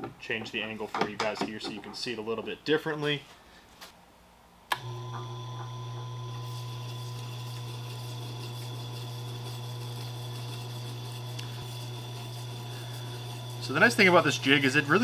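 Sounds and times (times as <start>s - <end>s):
sharpening machine humming: 4.7s - 15.0s.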